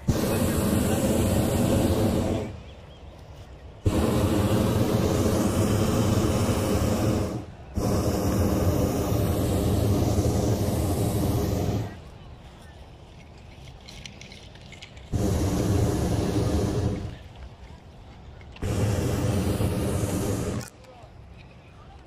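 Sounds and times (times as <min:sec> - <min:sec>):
propane burner blasts: 0:00.0 - 0:02.8, 0:03.8 - 0:12.3, 0:14.1 - 0:17.5, 0:18.3 - 0:20.8.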